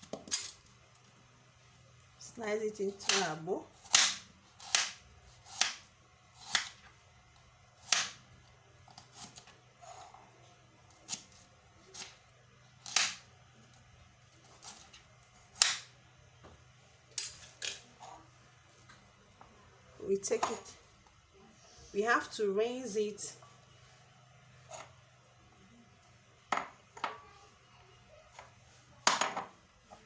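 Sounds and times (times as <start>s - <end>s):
knife slicing onion: 2.9s - 6.9s, 8.8s - 9.5s, 14.4s - 15.9s.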